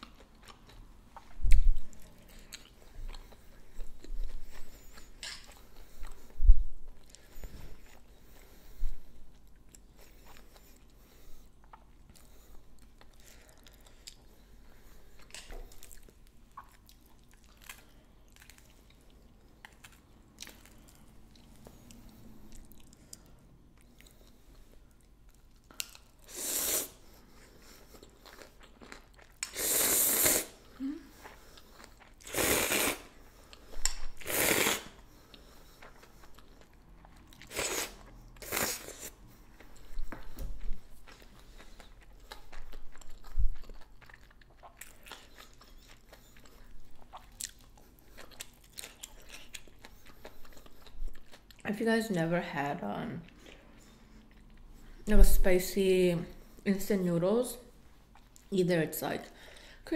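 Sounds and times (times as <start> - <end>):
person slurping noodles: 26.2 - 27.0, 29.4 - 30.6, 32.2 - 33.1, 34.2 - 35.0, 37.4 - 39.2.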